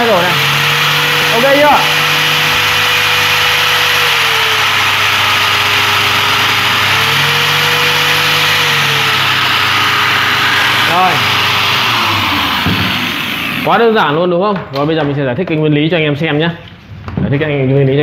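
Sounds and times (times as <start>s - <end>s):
angle grinder whining: 0.0s - 14.2s.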